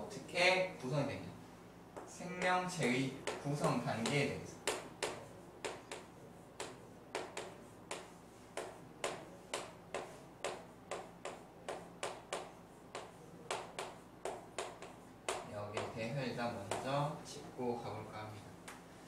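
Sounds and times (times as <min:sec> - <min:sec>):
chalk tapping on chalkboard: 0:01.9 - 0:17.0.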